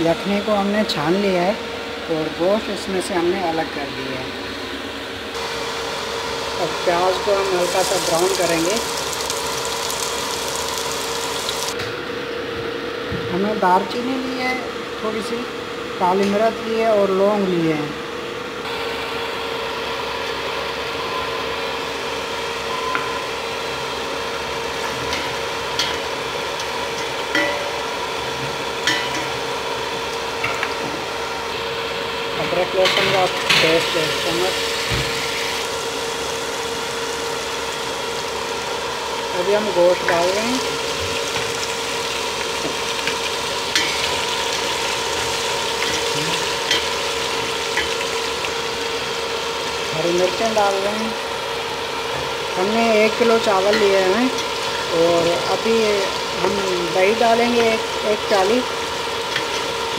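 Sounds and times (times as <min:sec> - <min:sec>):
onions sizzling in oil: 0:05.4 - 0:11.8, 0:18.7 - 0:59.9.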